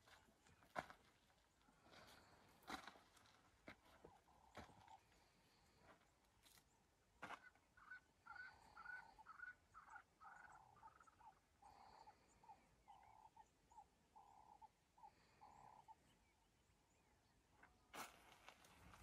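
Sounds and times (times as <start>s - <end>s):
faint animal calls: 7.2s - 16.4s.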